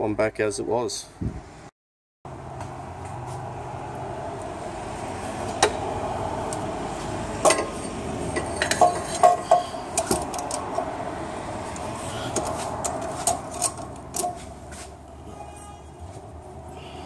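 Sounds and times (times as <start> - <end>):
metallic clinks and knocks: 7.4 - 10.9.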